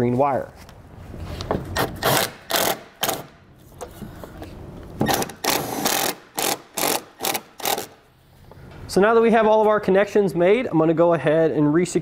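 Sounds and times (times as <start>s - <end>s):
cordless drill driving a screw: 2.0s - 3.3s, 5.0s - 8.0s.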